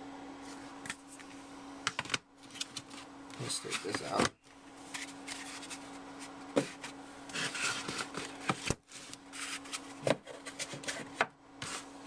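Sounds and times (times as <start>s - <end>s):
cardboard rustling and scraping: 2.5s - 4.2s, 4.8s - 12.0s.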